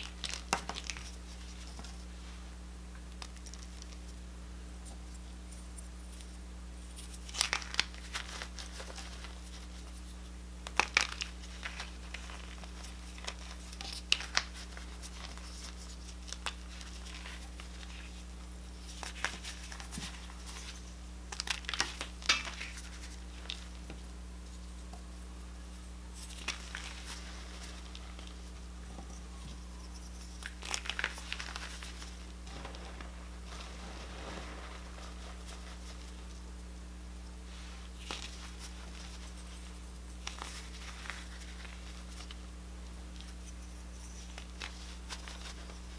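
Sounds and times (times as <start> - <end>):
low hum: 22.8 - 44.2.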